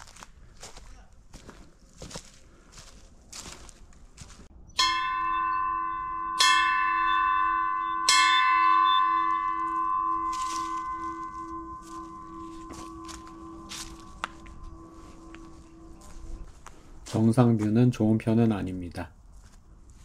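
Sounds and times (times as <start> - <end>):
metal bell ringing: 4.7 - 16.5.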